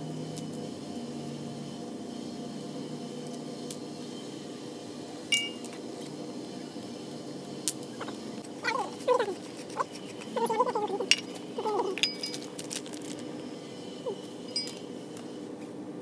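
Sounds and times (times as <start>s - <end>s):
steady hum: 0.0s - 16.0s
sharp metallic clink: 5.3s - 5.7s.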